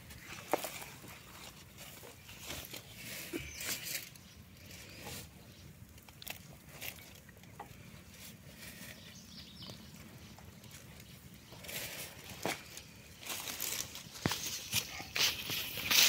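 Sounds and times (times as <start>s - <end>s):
soft rustles: 0.0s - 5.4s, 10.0s - 16.0s.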